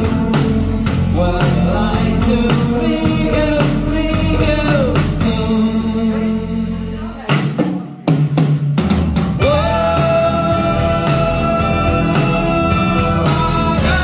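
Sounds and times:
man singing: 0:00.0 - 0:07.6, 0:09.4 - 0:14.0
bass guitar: 0:00.0 - 0:07.9, 0:08.9 - 0:14.0
drums: 0:00.0 - 0:14.0
keyboards: 0:09.1 - 0:14.0.

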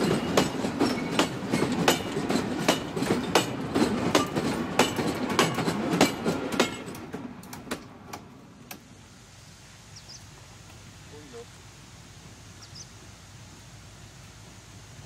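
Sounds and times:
freight wagons rolling past: 0:00.0 - 0:08.6
wheels clicking over rail joints: 0:00.0 - 0:08.9.

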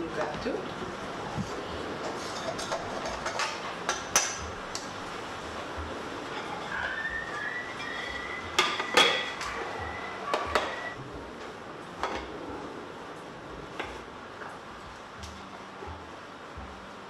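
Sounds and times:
plate and cake tin clinking: 0:07.8 - 0:10.9.

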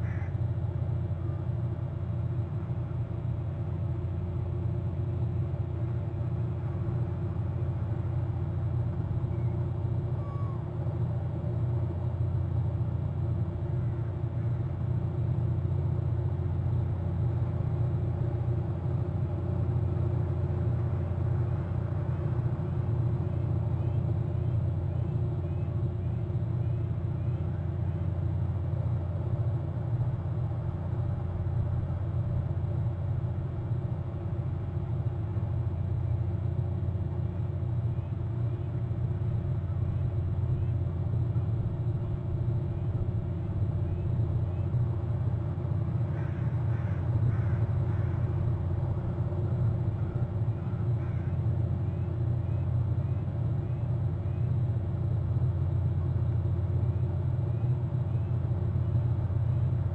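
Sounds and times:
bird calling: 0:00.0 - 0:00.4, 0:09.2 - 0:10.8, 0:46.0 - 0:54.5
constant hum: 0:00.0 - 0:59.9
steady low rumble: 0:00.0 - 0:59.9.

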